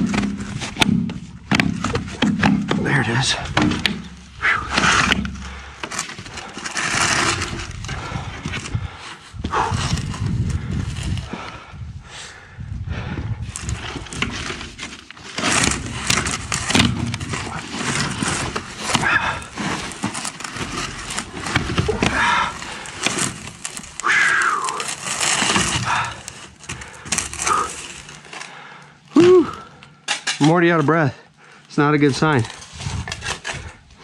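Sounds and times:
plastic pipe clicking and rattling: 0.0s - 8.7s, 13.6s - 24.1s.

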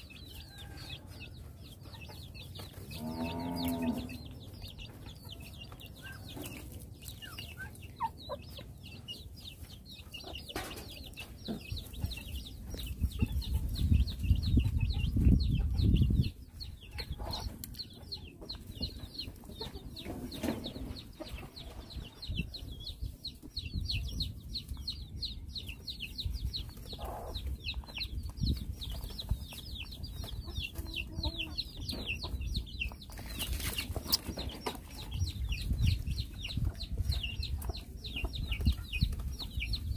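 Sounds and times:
birds chirping: 0.0s - 39.9s
bird clucking calls: 1.8s - 39.9s.

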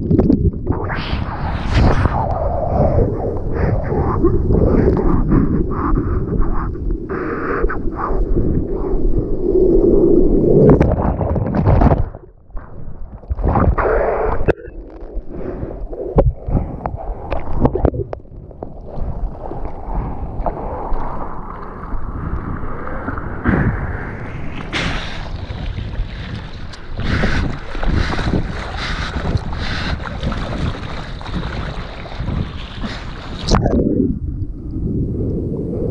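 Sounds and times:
wind buffeting microphone: 0.0s - 14.5s, 15.6s - 35.9s
whitewater churning and splashing: 23.5s - 33.6s
arm paddling through water: 24.6s - 33.8s.

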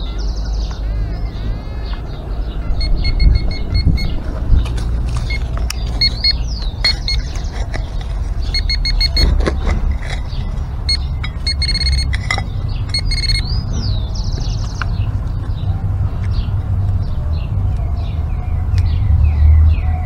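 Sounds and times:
bird calling: 0.0s - 14.8s
pinpointer short beeps: 2.8s - 4.2s, 5.3s - 7.4s, 8.5s - 9.3s, 10.4s - 12.3s, 12.9s - 13.5s.

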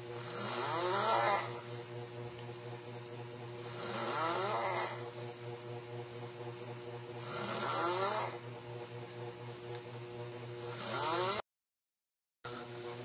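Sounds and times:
man snoring: 0.0s - 1.8s, 3.6s - 5.1s, 7.2s - 8.4s, 10.7s - 11.4s
steady low hum: 0.0s - 11.4s.

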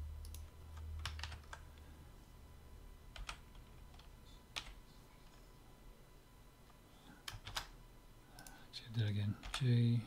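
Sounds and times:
faint low hum: 0.0s - 10.0s
keyboard and mouse clicking: 0.2s - 1.6s, 7.2s - 7.7s, 8.4s - 8.6s.

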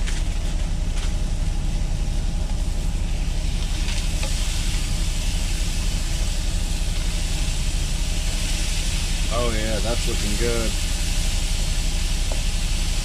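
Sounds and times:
low engine rumble: 0.0s - 13.0s
vegetables sizzling in a pan: 3.1s - 13.0s.

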